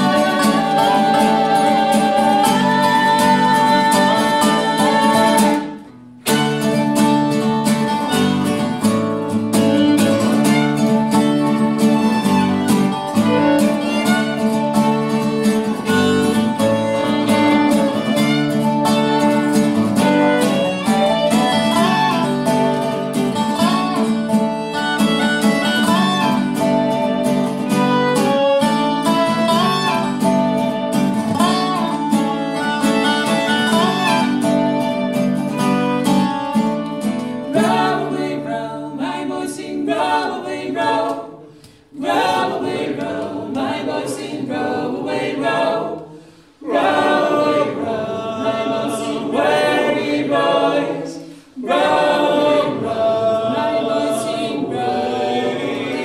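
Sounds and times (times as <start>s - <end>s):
voices singing in harmony: 0.0s - 5.9s, 37.4s - 56.0s
fiddle melody: 0.0s - 38.6s
acoustic guitar: 0.0s - 56.0s
dobro: 0.0s - 56.0s.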